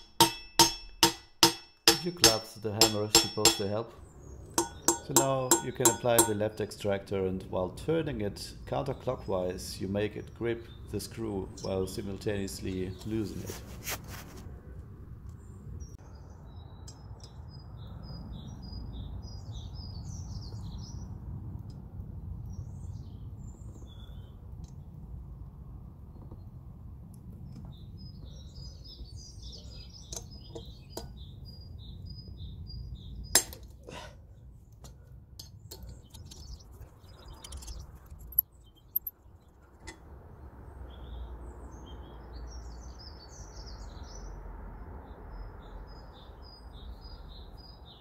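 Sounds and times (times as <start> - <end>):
steady low rumble: 1.8 - 33.3
birds chirping: 1.9 - 13.6, 15.3 - 21.2, 22.5 - 24.9, 27.4 - 44.4
metal wrench clicks and clinks: 37.4 - 39.1.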